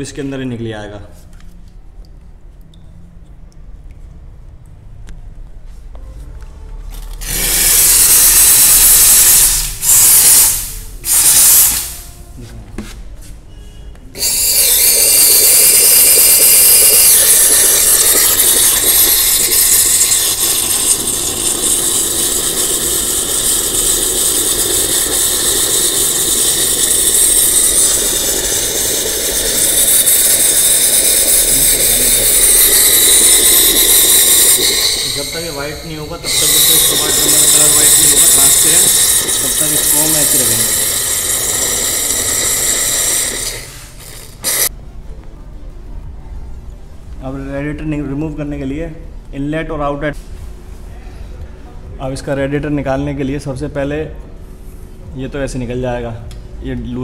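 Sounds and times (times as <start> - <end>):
steam cleaner hissing: 7.2 - 12.2, 14.2 - 44.7.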